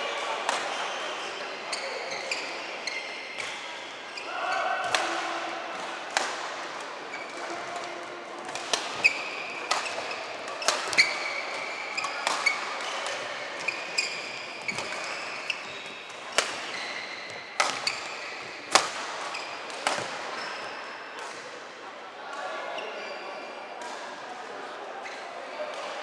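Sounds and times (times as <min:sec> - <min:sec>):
shoes squeaking on court floor: 0:00.5 - 0:04.6, 0:07.1 - 0:08.0, 0:08.6 - 0:21.0, 0:22.6 - 0:23.5
rackets hitting shuttlecock: 0:03.3 - 0:03.8, 0:04.8 - 0:20.6.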